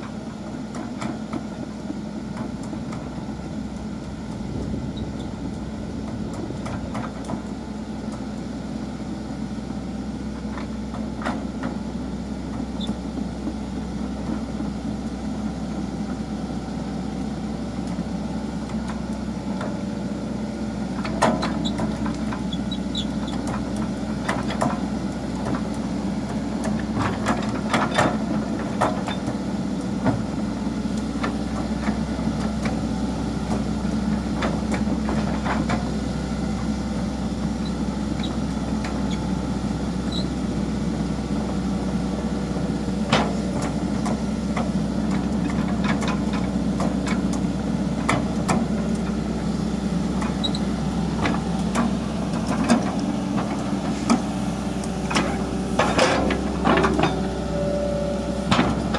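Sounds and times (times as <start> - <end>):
excavator diesel engine running: 0.0 - 58.9
metallic track clanks: 51.2 - 58.9.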